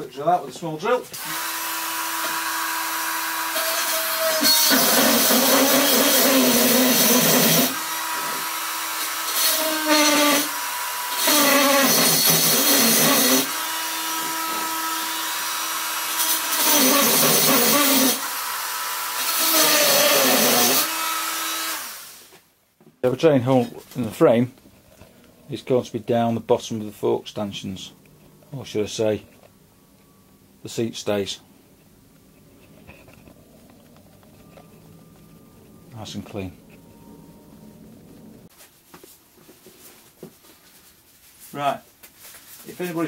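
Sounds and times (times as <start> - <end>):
electric drill grinding: 1.2 - 22.3.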